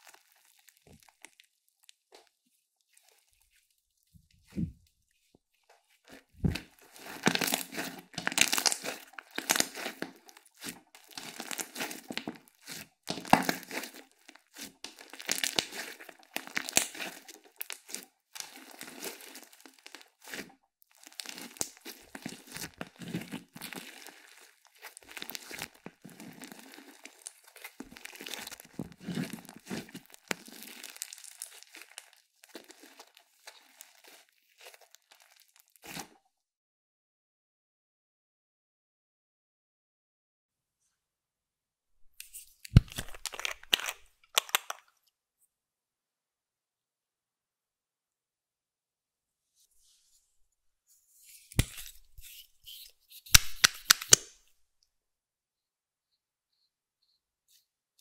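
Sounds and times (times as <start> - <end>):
slime squished by hand: 0.0 - 2.3, 6.1 - 36.1.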